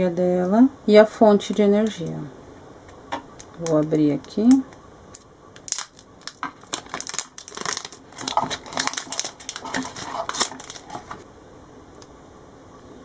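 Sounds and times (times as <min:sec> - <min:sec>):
plastic bag crinkling: 0:05.6 - 0:11.2.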